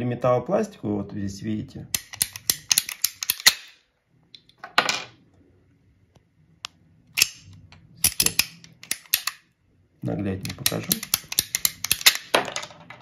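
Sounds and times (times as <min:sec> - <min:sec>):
ratcheting pipe cutter clicking: 0:02.0 - 0:03.6, 0:08.0 - 0:09.4, 0:10.4 - 0:12.3.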